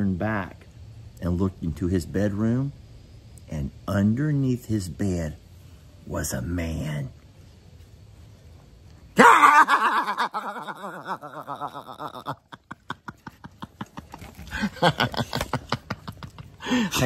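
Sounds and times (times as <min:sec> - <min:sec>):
man laughing loudly: 0:09.2 - 0:17.0.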